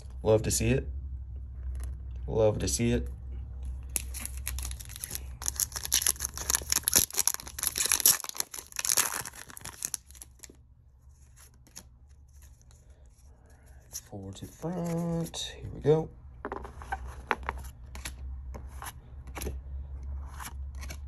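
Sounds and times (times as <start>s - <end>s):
foil wrapper crinkling: 3.9s - 10.6s.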